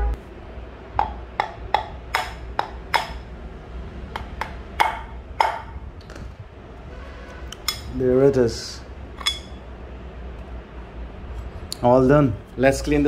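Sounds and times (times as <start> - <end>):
hammer knocking on metal spindle: 1.0 - 3.3, 4.1 - 5.8.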